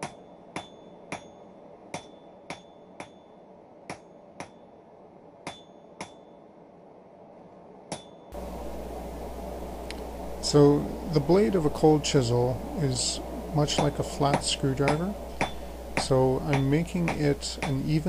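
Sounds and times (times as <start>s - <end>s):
hammer ringing on anvil: 0.0s - 4.6s, 5.4s - 6.4s, 13.7s - 18.0s.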